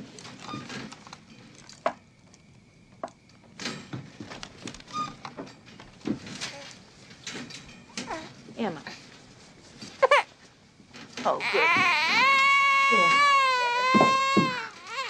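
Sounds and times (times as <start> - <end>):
knocks creaks and rustling on crib: 3.6 - 9.1, 10.8 - 15.0.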